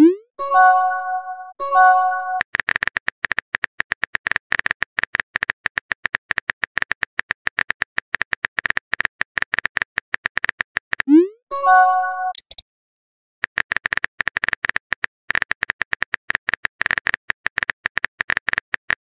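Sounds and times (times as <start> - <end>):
phone keyboard typing clicks: 12.3 - 12.6.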